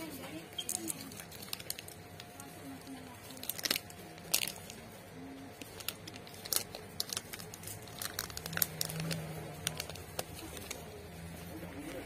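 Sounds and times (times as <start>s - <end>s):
faint steady hum: 0.0s - 12.0s
plastic packaging crinkling: 0.0s - 12.0s.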